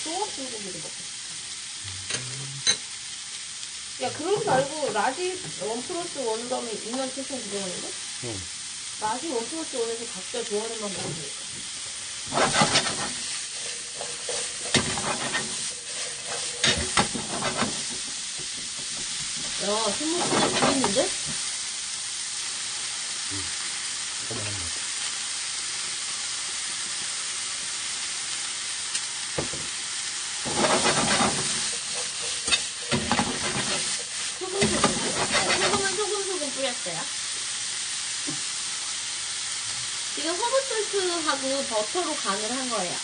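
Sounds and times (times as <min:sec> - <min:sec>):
onions sizzling in frying pan: 0:00.0 - 0:43.0
spatula scraping pan: 0:10.8 - 0:21.4, 0:30.4 - 0:36.4.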